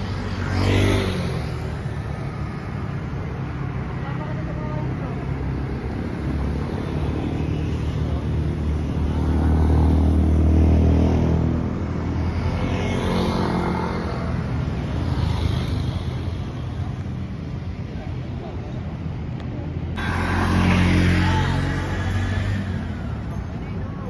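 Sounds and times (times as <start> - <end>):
traffic hum: 0.0 - 24.0
vehicle passing close: 20.0 - 22.9.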